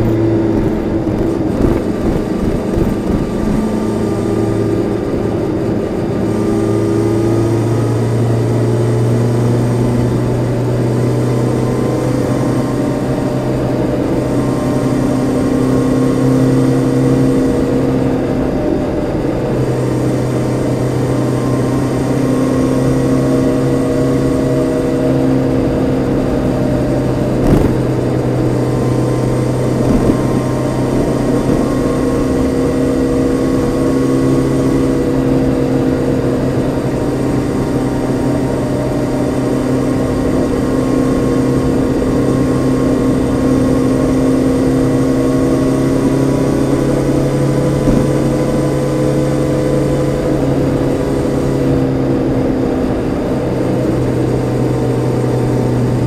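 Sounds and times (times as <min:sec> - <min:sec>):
motorcycle engine cruising: 0:00.0 - 0:56.0
short knock: 0:27.4 - 0:27.9, 0:47.8 - 0:48.3.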